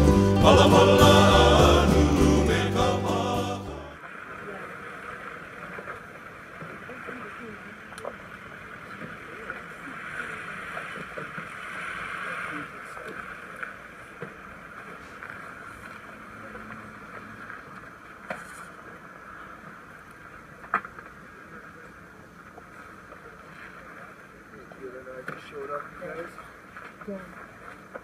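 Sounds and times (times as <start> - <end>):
steady outdoor hiss: 0.0 - 28.0.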